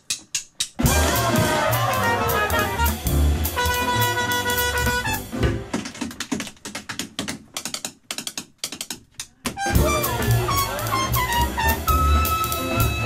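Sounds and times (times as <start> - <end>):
sharp percussive clicks: 0.0 - 0.8, 5.7 - 9.6
bass and drums: 0.0 - 5.8, 9.6 - 13.0
trumpet sliding notes: 0.8 - 5.4, 9.6 - 13.0.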